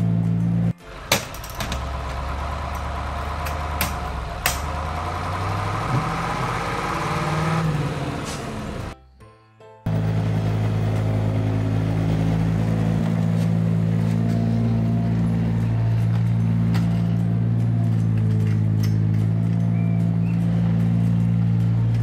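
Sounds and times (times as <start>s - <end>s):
tractor engine idling: 0.0s - 9.0s, 9.9s - 22.0s
background music: 0.0s - 22.0s.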